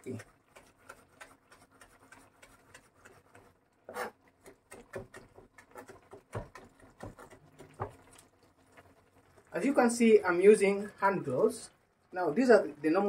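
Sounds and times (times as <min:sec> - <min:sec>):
knife chopping on plastic board: 0:00.1 - 0:08.0.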